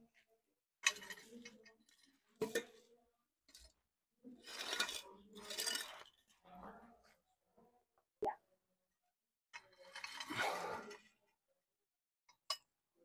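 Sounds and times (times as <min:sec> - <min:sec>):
metal pipe clinking and scraping: 0:04.4 - 0:06.3, 0:09.5 - 0:11.1.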